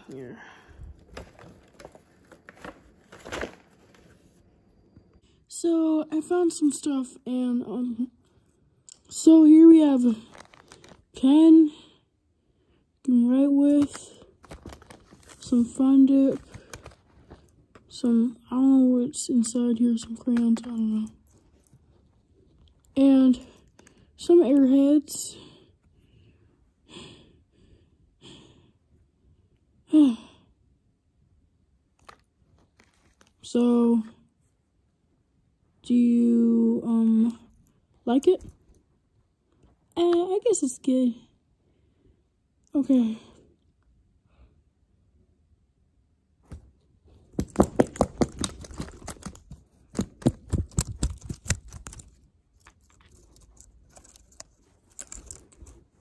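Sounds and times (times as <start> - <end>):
person sighing: 0.0 - 1.0
person breathing: 0.0 - 1.2, 25.3 - 30.6
plush toy taps and rustles: 13.8 - 15.5, 46.4 - 53.4.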